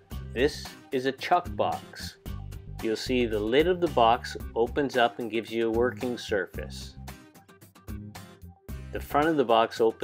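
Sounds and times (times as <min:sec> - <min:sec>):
quiet background music: 0:00.0 - 0:10.0.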